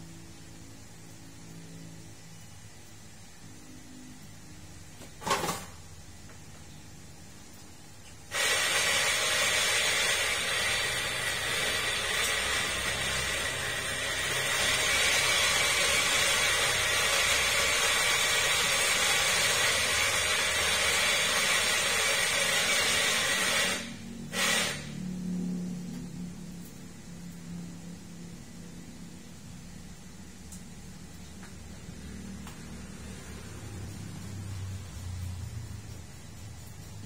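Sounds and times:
coffee grinder grinding beans: 0:08.3 - 0:25.0.

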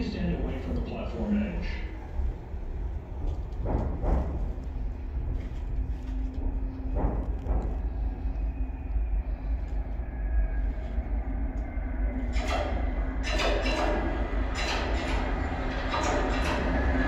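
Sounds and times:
subway train rumble: 0:00.0 - 0:17.0.

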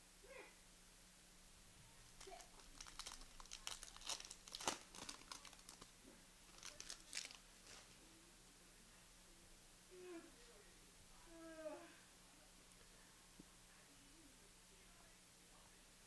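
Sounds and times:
plastic wrapper tearing and crinkling: 0:02.2 - 0:05.9, 0:06.5 - 0:07.9.

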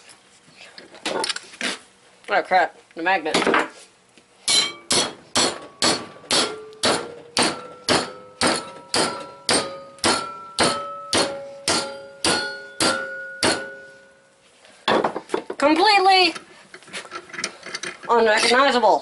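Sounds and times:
hammer blows on metal: 0:04.5 - 0:14.2.

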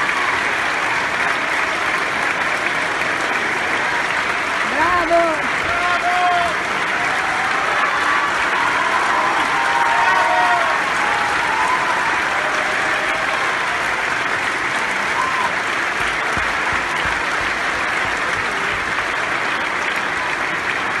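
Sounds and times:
audience applauding: 0:00.0 - 0:21.0.

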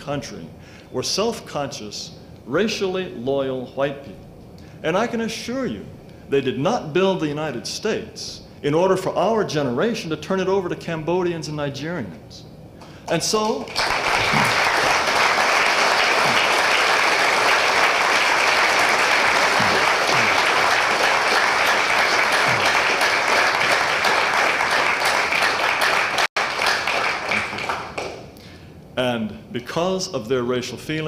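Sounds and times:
audience applauding: 0:13.4 - 0:28.2.

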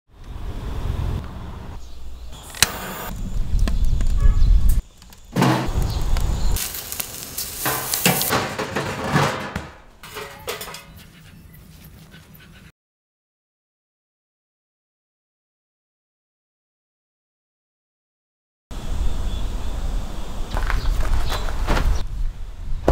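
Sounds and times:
steak sizzling on a grill: 0:05.7 - 0:08.3.

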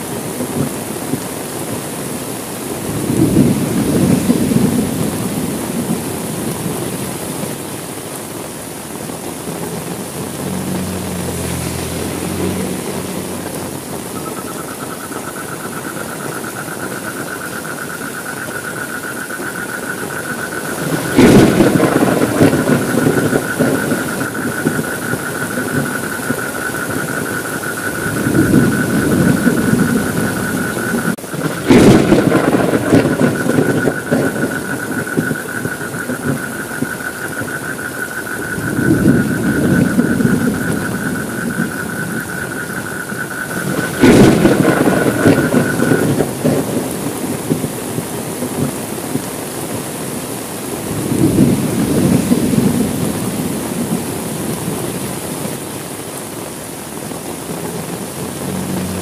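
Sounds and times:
heavy rain falling: 0:00.0 - 0:59.0
thunder cracks rumbling: 0:02.7 - 0:07.4, 0:18.5 - 0:49.3, 0:50.8 - 0:55.0.

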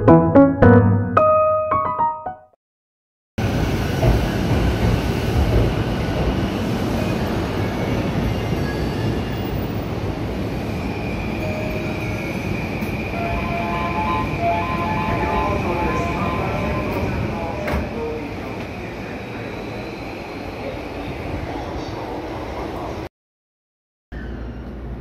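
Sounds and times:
electric train wheels rumbling: 0:03.4 - 0:20.4.

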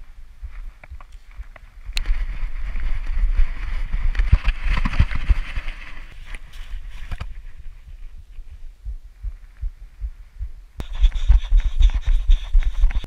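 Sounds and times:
rustling through grass: 0:00.0 - 0:08.6.

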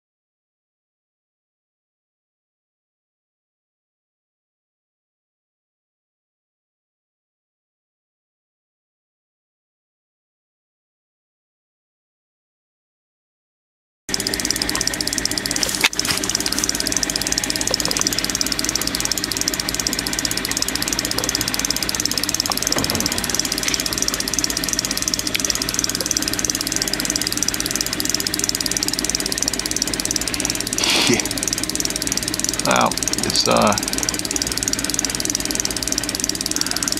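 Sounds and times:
outboard motor running: 0:14.1 - 0:36.9
sharp click: 0:14.1 - 0:36.9.

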